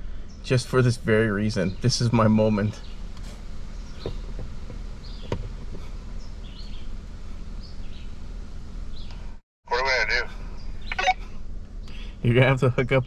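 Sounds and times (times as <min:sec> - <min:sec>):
low engine rumble: 0:00.0 - 0:13.0
high bird chirps: 0:06.1 - 0:07.0.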